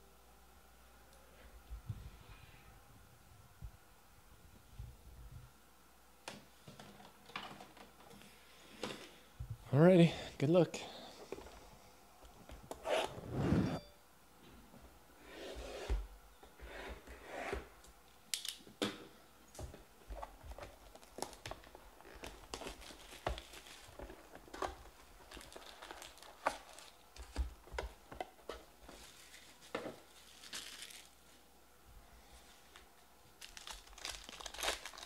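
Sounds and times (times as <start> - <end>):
foil packs clicking and rustling: 20.2 - 31.2, 33.4 - 35.0
cardboard crinkling and tearing: 20.5 - 27.4, 28.9 - 31.2, 33.4 - 35.0.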